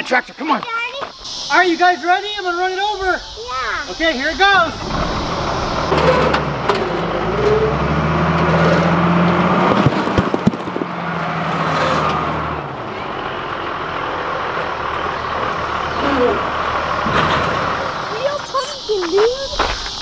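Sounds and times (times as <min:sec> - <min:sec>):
diesel loader engine running: 0:00.8 - 0:20.0
pumpkins bursting under tires: 0:09.4 - 0:10.9.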